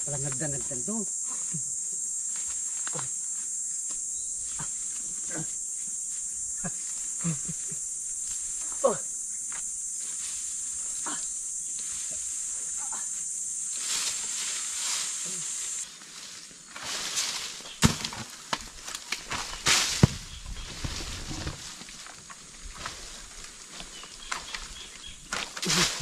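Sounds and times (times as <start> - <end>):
high insect buzz: 0.0 - 26.0
rustling: 11.7 - 26.0.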